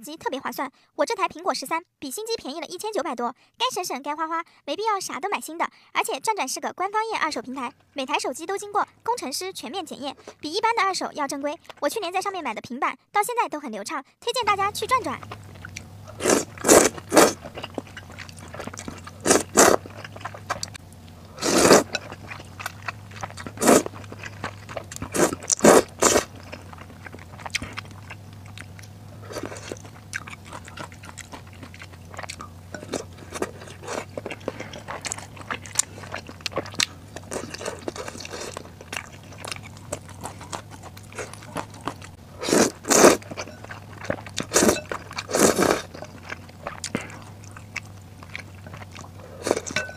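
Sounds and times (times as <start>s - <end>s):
quiet chewing: 10.0s - 10.5s, 11.4s - 11.9s, 14.4s - 49.9s
loud noodle slurps: 15.4s - 27.8s, 29.2s - 30.0s, 30.6s - 43.5s, 44.1s - 46.2s, 49.2s - 49.9s.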